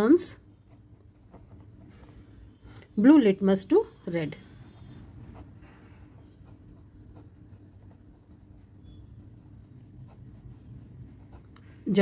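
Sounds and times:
pen scratching on paper: 0.6 - 1.9, 4.4 - 12.0.

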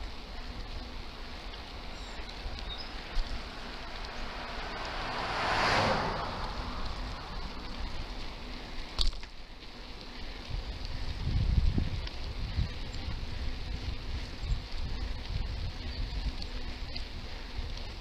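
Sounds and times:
bicycle road rumble: 0.0 - 18.0
car passing: 0.5 - 11.2
wind buffeting microphone: 1.5 - 8.9, 10.3 - 18.0.

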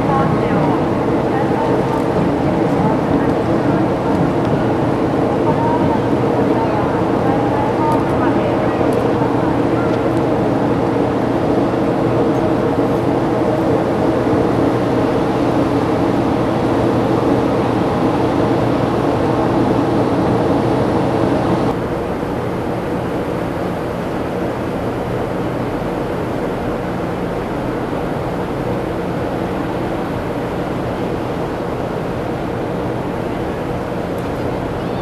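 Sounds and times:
ship engines droning: 0.0 - 35.0.

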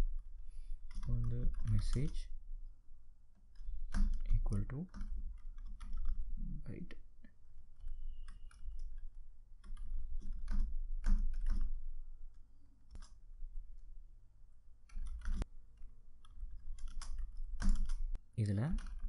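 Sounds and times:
low steady hum: 0.0 - 19.0
keyboard keys clicking: 0.8 - 2.2, 3.4 - 6.3, 7.8 - 11.8, 14.9 - 19.0.

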